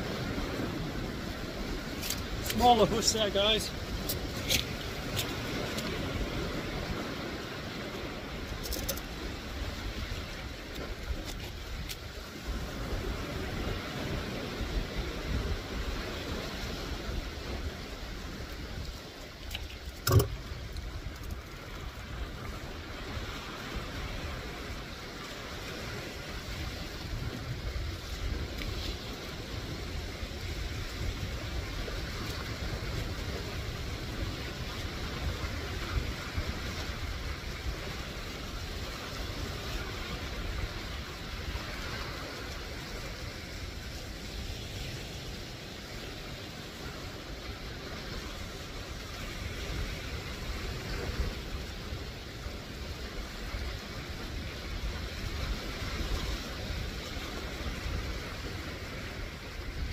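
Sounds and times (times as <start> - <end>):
waves washing over rocks: 0.0 - 59.9
sharp thump: 20.0 - 20.4.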